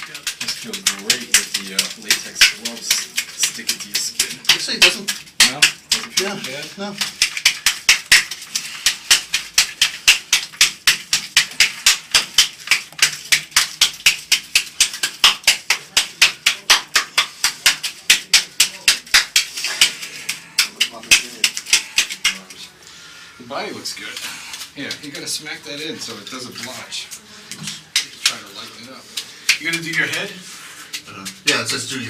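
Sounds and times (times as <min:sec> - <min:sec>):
gloved hand slapping bare skin: 0:00.0 - 0:22.5, 0:29.2 - 0:30.2.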